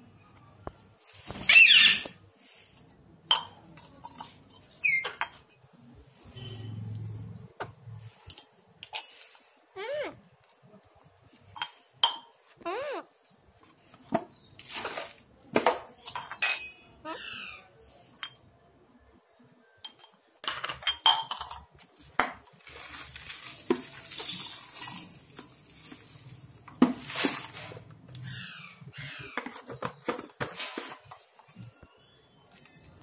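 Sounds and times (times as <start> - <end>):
steel tumbler clinking on tile: 16.0 - 16.8.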